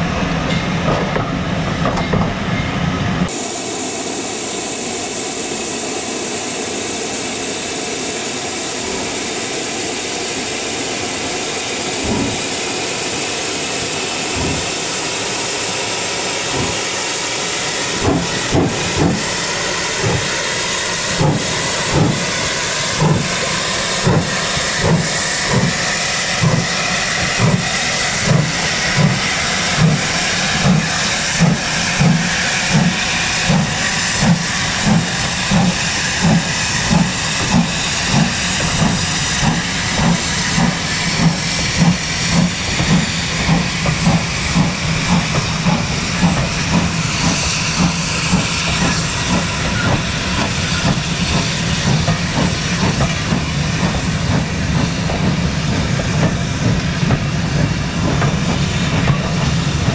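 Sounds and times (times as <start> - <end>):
steam locomotive exhaust beats: 0.0 - 59.9
steam hissing: 3.3 - 59.9.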